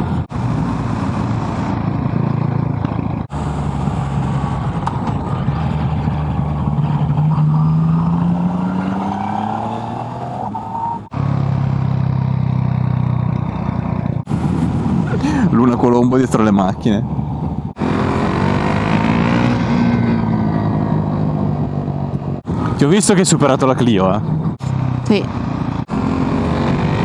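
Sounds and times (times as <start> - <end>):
motorcycle engine running: 11.2 - 15.2
wind rush: 14.2 - 22.8.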